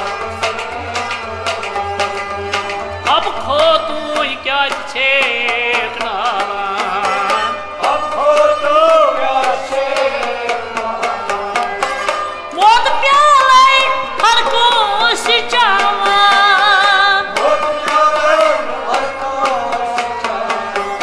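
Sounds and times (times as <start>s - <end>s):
bowed string instrument: 0.0s - 21.0s
clay pot drum rhythm: 0.0s - 21.0s
harmonium: 0.0s - 21.0s
plucked lute: 0.0s - 21.0s
person singing: 3.0s - 21.0s.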